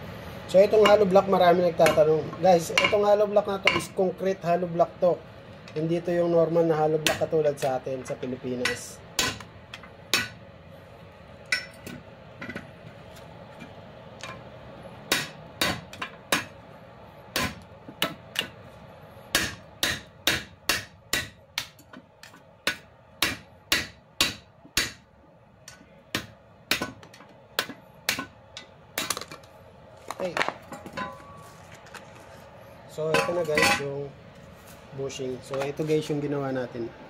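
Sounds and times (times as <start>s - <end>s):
hammer striking steel punch: 7.0s - 7.7s, 8.6s - 10.4s, 15.1s - 16.6s, 17.3s - 18.6s, 19.3s - 25.1s, 25.7s - 29.3s, 33.1s - 33.9s.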